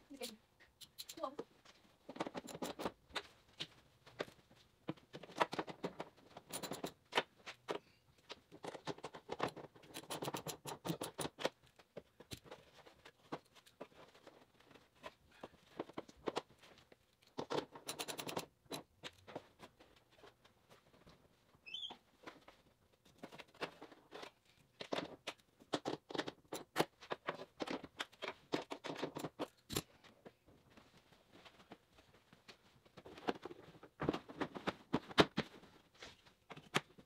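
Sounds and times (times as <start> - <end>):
tool clicking and rattling on parts: 2.0 - 3.3, 5.1 - 14.7, 15.4 - 19.6, 23.0 - 30.1.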